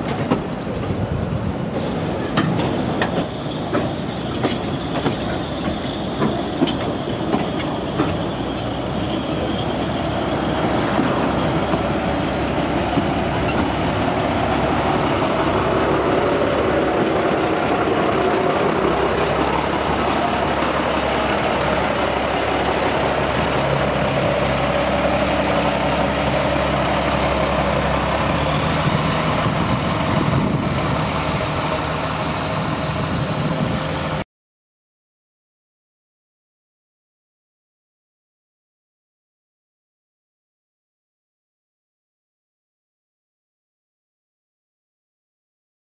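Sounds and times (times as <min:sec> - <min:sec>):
train rumble: 0:00.0 - 0:34.2
train wheels clicking over rail joints: 0:00.0 - 0:34.2.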